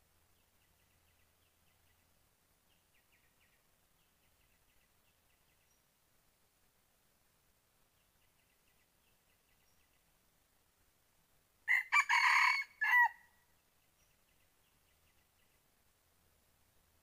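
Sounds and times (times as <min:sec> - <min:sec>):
faint bird or insect chirps: 0:00.0 - 0:10.8, 0:12.3 - 0:17.0
rooster crowing: 0:11.7 - 0:13.3.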